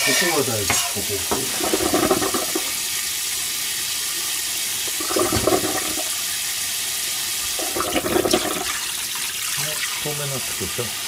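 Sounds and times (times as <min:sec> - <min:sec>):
tap water running into colander: 0:00.0 - 0:11.0.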